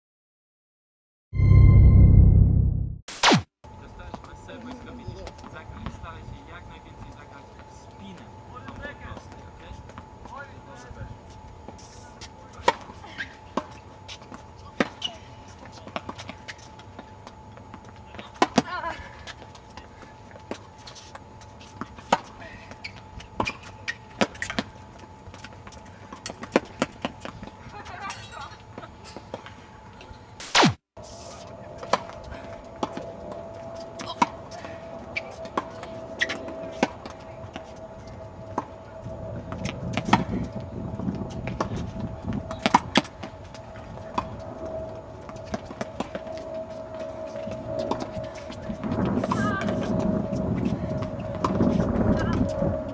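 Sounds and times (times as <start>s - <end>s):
tennis balls bouncing on court: 41.4s - 44.4s
tennis balls struck with rackets: 42.5s - 43.1s.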